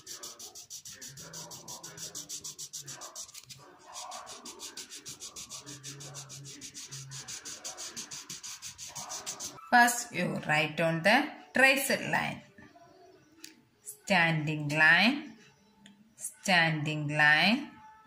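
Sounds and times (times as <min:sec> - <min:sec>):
crayon scratching on paper: 0:00.0 - 0:09.7.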